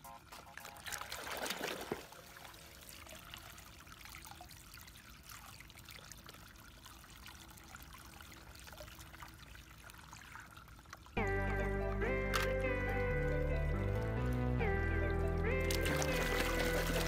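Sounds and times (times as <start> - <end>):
water trickling into basin: 0.2 - 14.4, 15.6 - 17.0
water splashing in plastic basin: 0.7 - 2.5, 15.6 - 17.0.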